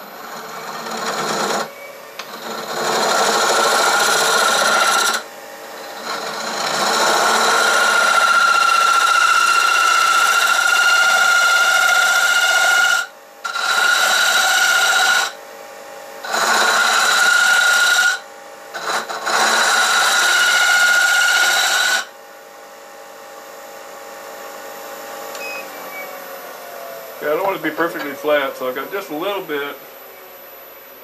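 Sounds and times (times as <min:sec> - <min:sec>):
tool cutting wood on a lathe: 0:00.0 - 0:15.4, 0:16.2 - 0:22.1, 0:27.1 - 0:30.1
lathe running hum: 0:00.0 - 0:31.0
high-pitched whine: 0:25.3 - 0:31.0.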